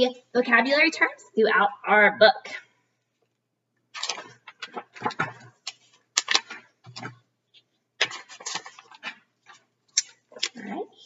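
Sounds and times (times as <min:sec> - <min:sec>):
book pages rustling: 0:04.0 - 0:10.6.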